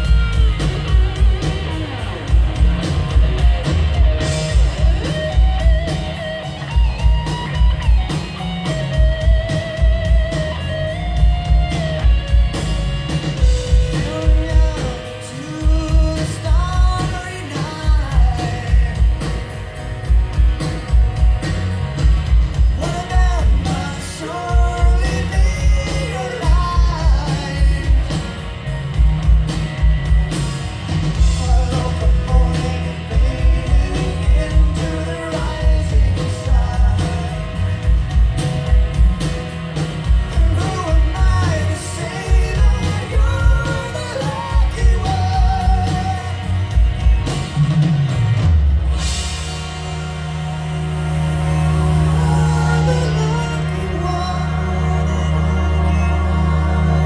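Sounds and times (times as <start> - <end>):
live rock band: 0.0 - 57.0
person singing: 13.6 - 19.3, 31.2 - 37.6, 40.3 - 46.5, 51.6 - 57.0.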